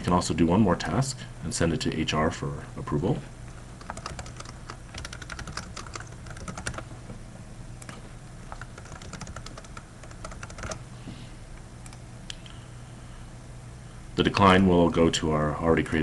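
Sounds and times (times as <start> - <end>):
computer keyboard typing: 3.8 - 6.9, 7.8 - 10.8.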